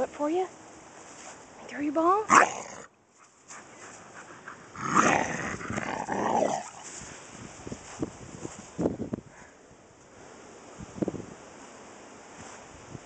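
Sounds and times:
large dog growling: 4.2s - 7.0s.

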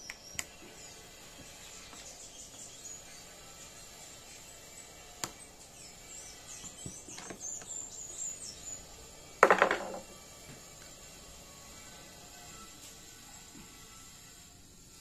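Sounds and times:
birds chirping: 0.0s - 10.2s.

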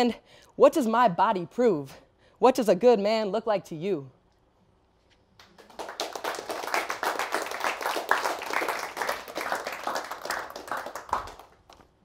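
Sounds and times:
audience applauding: 5.4s - 11.9s.

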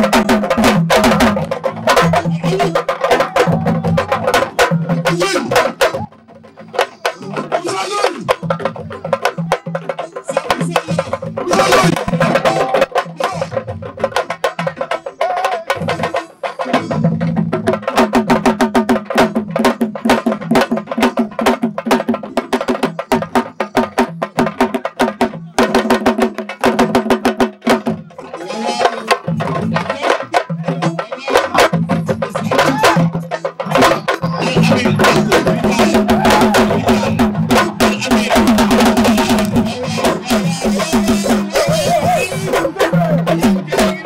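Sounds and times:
drums played fast: 0.0s - 44.0s
voices: 1.1s - 17.2s, 28.0s - 44.0s.

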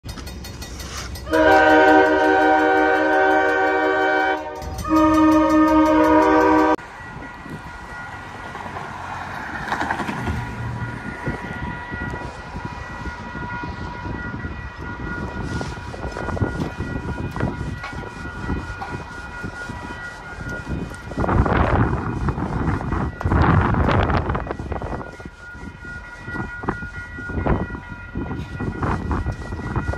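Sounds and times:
passing traffic: 0.0s - 29.9s
locomotive horn blasts: 1.2s - 6.8s.

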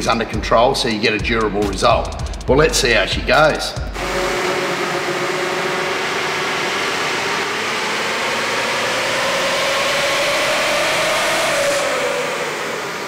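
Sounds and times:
diesel truck on dyno rollers: 3.9s - 13.0s.

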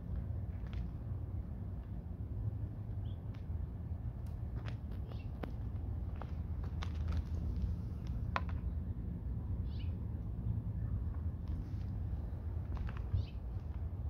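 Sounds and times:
steady low rumble: 0.0s - 14.0s
faint bird-like chirping: 9.6s - 10.0s, 13.1s - 13.4s.

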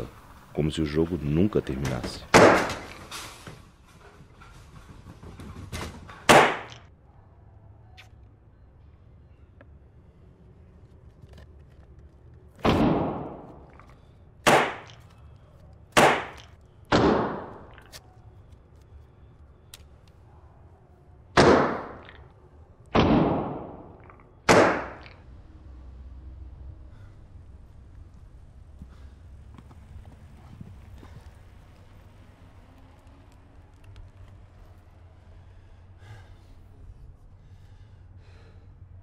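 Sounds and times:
loud echoing bangs: 2.0s - 3.0s, 6.2s - 6.7s, 12.6s - 13.6s, 14.4s - 15.0s, 16.0s - 17.7s, 21.4s - 22.1s, 22.9s - 25.0s.

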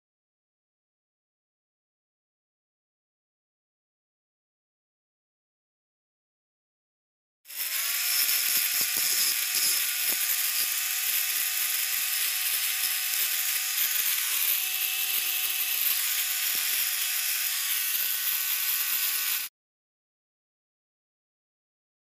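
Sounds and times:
angle grinder grinding metal: 7.5s - 19.5s.

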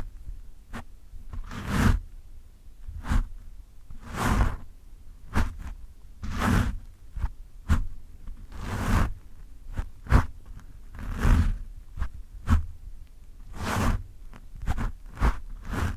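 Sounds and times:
fingertips scratching microphone foam: 0.7s - 2.0s, 2.9s - 3.4s, 4.0s - 4.7s, 5.3s - 12.7s, 13.5s - 15.9s.

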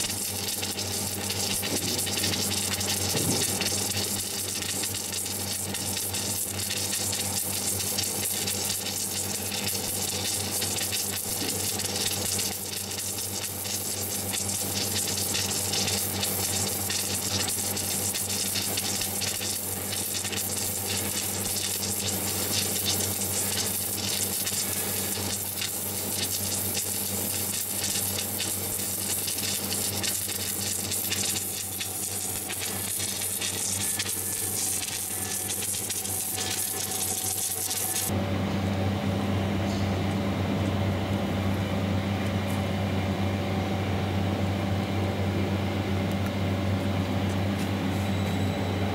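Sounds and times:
welding arc sizzling: 0.0s - 38.2s.

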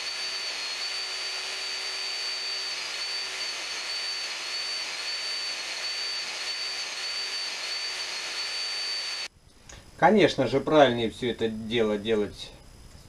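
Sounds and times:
grinding wheel high whine: 0.0s - 9.3s
saw teeth grinding on wheel: 0.0s - 9.3s.

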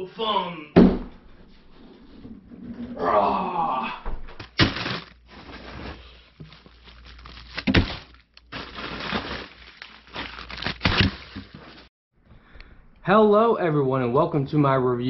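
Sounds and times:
rustling handling noise: 4.5s - 11.9s.

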